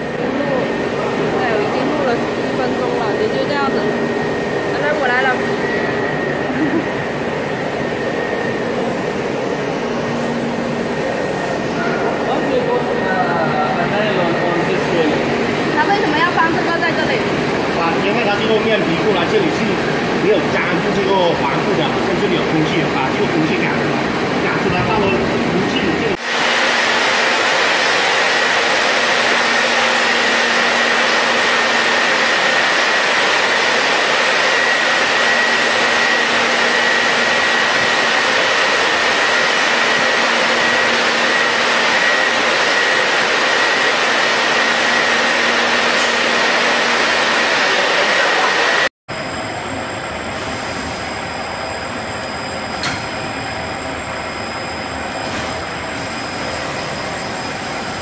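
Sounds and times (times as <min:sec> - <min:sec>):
production line machinery whirring: 0:00.0 - 0:58.0.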